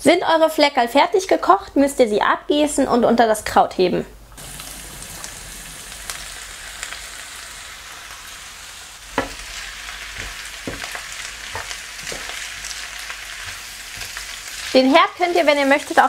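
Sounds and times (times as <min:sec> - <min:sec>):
cabbage sizzling in a frying pan: 0:04.4 - 0:16.0
wooden spatula scraping a pan: 0:09.1 - 0:16.0.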